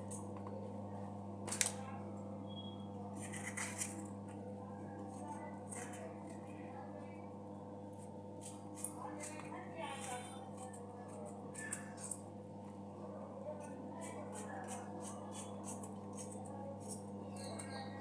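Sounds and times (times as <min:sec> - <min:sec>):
electrical hum: 0:00.0 - 0:18.0
knife cutting vegetable: 0:03.1 - 0:04.1, 0:08.4 - 0:12.2, 0:13.6 - 0:17.7.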